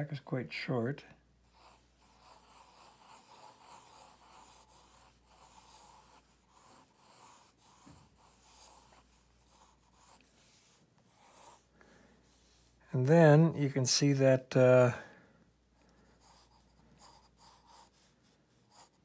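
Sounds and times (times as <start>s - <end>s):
pencil scratching on paper: 1.4s - 12.9s, 15.8s - 19.0s.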